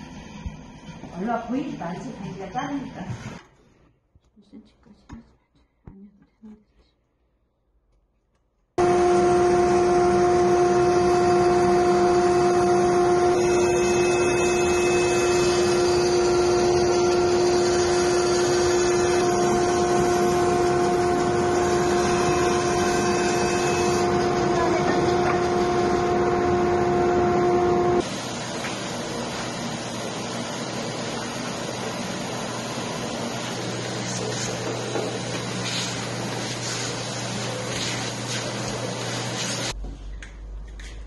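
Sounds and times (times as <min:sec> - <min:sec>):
band saw cutting wood: 0:08.8 - 0:28.1.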